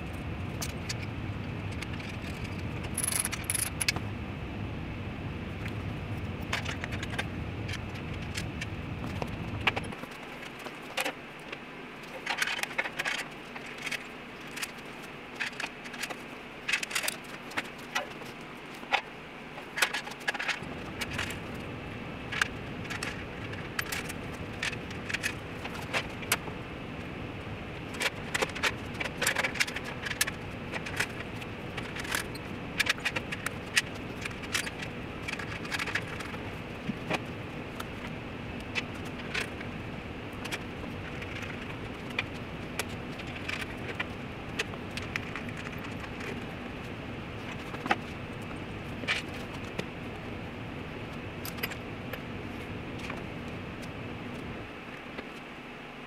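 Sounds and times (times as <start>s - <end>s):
steady background hum: 0.0s - 56.0s
metal tools clinking: 2.0s - 3.9s.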